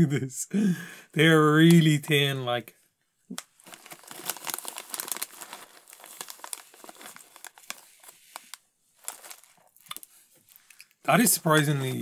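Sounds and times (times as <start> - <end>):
snack bag crinkling: 3.3 - 11.0.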